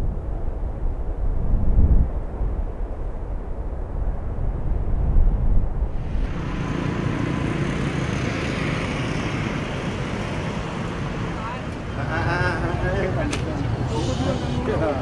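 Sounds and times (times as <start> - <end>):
cars passing: 6.0 - 15.0
motor scooter passing: 6.0 - 15.0.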